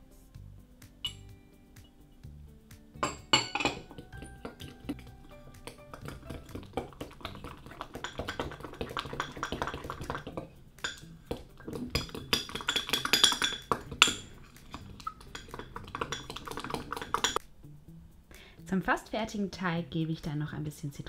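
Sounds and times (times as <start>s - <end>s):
fork knocking against glass: 3.0s - 5.0s
fork scraping and clinking glass: 3.0s - 5.0s, 6.0s - 17.4s.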